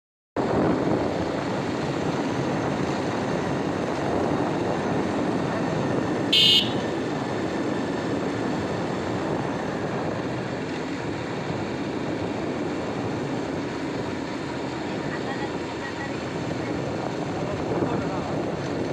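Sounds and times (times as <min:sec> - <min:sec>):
motorcycle engine and road noise: 0:00.4 - 0:18.9
short horn beep: 0:06.3 - 0:06.9.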